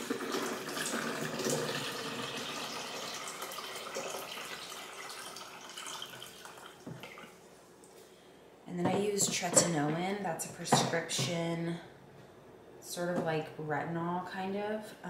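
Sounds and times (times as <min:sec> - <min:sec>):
water pouring from a carafe: 0:00.0 - 0:07.4.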